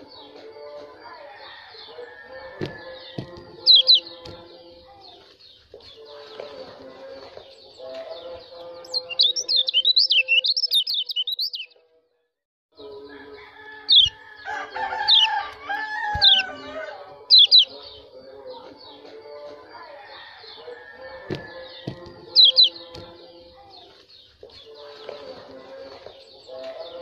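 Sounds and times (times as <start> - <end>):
high sharp bird calls: 1.8 - 4.4, 7.4 - 11.8, 13.8 - 18.1, 20.4 - 23.0
lower bird calls: 2.7 - 4.2, 8.9 - 11.7, 13.9 - 14.2, 16.1 - 16.6, 17.3 - 18.0, 21.4 - 22.8.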